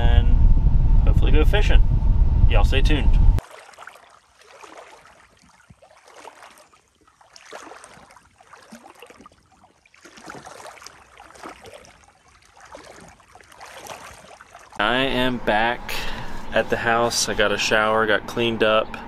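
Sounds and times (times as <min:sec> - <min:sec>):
water splashing around wading legs: 0:03.4 - 0:14.8.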